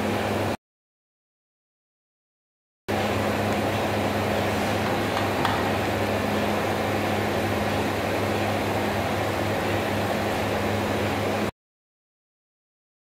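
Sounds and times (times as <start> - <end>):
conveyor whirring: 2.9 - 11.5
electric motor hum: 2.9 - 11.5.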